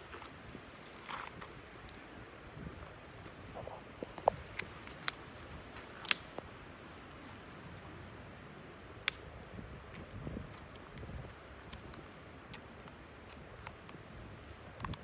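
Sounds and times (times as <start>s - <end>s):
campfire crackling: 0.0s - 15.0s
low background noise: 0.0s - 15.0s
sharp fire pops: 5.8s - 7.0s, 9.0s - 15.0s.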